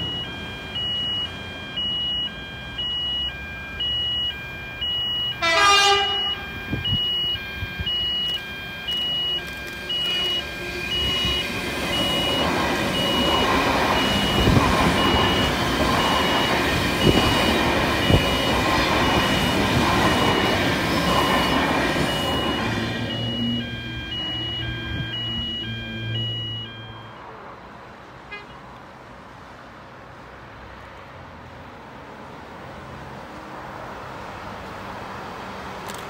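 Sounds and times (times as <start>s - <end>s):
level crossing warning bell: 0.0s - 27.4s
train horn blast: 5.4s - 6.4s
train wheels rumbling on rails: 9.6s - 24.9s.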